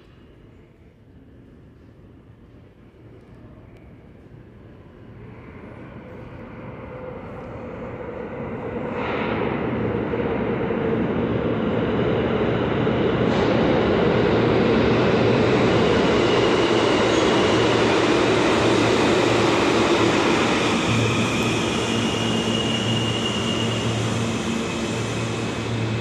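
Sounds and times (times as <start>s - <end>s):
subway train rumble: 0.0s - 26.0s
faint high squeal: 20.0s - 26.0s.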